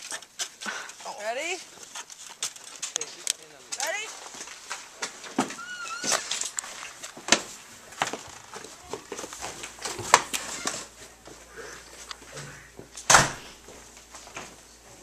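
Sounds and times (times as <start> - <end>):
rustling: 0.0 - 15.0
footsteps on a staircase: 4.1 - 10.2, 10.9 - 15.0.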